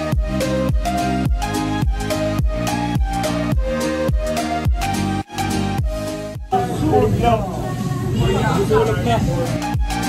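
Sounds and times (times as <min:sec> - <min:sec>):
upbeat background music: 0:00.0 - 0:10.0
restaurant chatter: 0:06.5 - 0:09.6.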